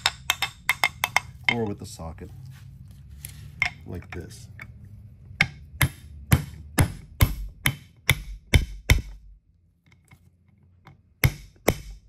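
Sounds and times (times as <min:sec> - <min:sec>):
small metal hammer tapping on metal: 0:00.0 - 0:01.7.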